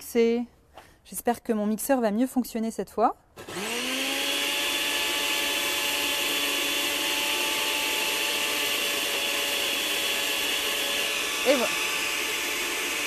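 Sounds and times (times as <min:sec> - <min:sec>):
blender motor whining: 0:03.4 - 0:13.0.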